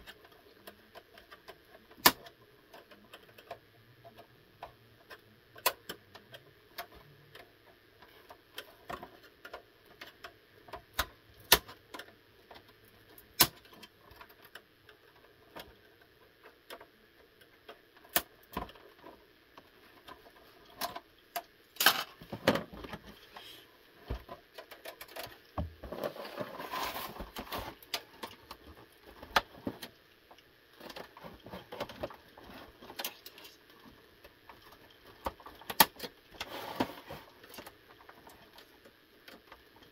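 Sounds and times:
plastic parts clicking and clattering: 0.0 - 39.9
scraping rustle: 24.8 - 29.9, 36.3 - 38.7.

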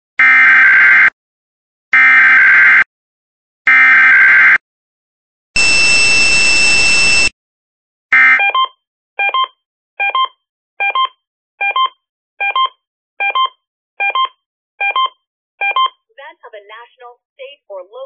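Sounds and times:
buzzing data screech: 5.6 - 7.3.

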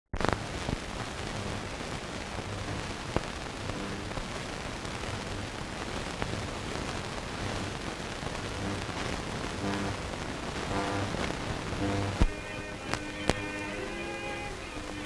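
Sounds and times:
film soundtrack hiss and crackle: 0.1 - 15.0
sharp pops: 0.2 - 1.7.

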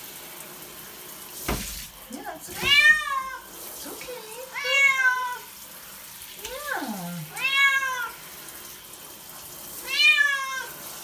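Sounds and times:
shower spray hissing: 0.0 - 11.0
cat meowing: 2.6 - 3.4, 4.4 - 5.5, 7.2 - 8.2, 9.8 - 10.8.

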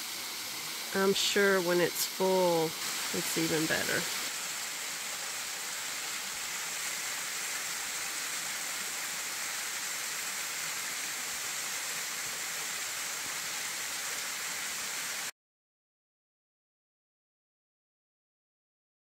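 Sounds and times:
waterfall rushing: 0.0 - 15.3.

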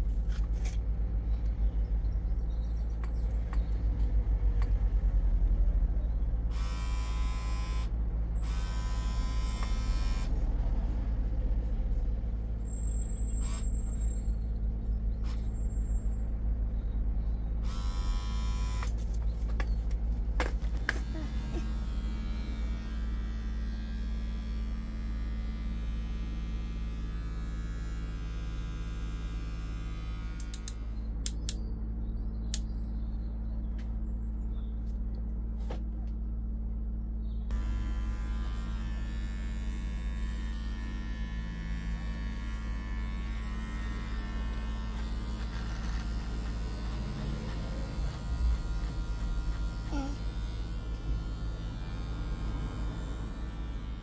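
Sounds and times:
electric hair clippers buzzing: 6.5 - 10.4, 17.6 - 19.0, 20.4 - 31.5, 37.5 - 54.0
sharp clicks: 30.4 - 31.6.

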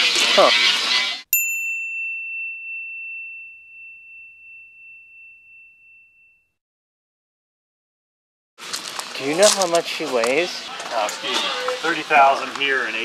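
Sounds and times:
high chime ringing: 1.3 - 6.5.

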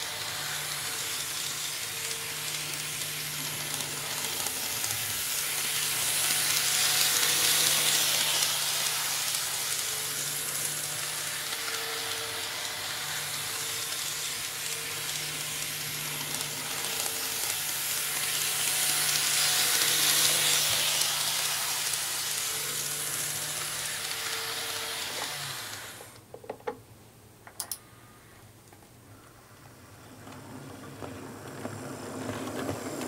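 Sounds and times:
model train wheels rolling on rail: 0.0 - 26.3, 29.5 - 33.0
faint motor hum: 0.0 - 26.4.

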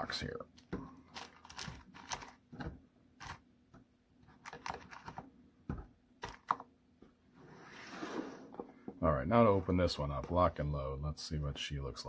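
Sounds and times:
plastic bag crinkling: 1.0 - 2.4.

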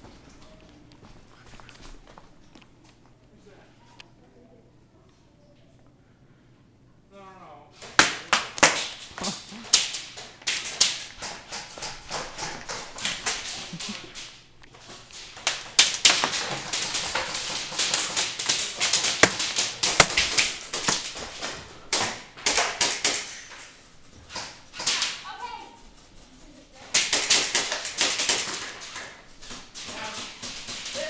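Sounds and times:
pellets cracking against cover: 7.8 - 23.7, 26.9 - 31.0
airsoft guns firing: 15.7 - 21.1.

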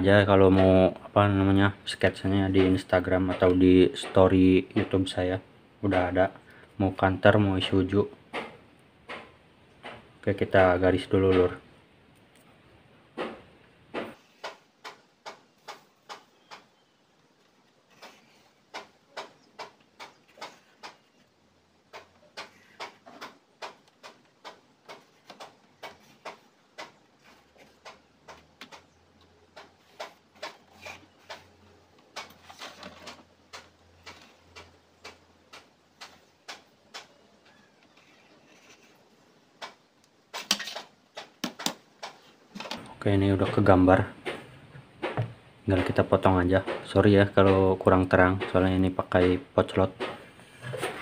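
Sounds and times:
pencil scratching on paper: 29.8 - 31.5, 38.0 - 39.0.

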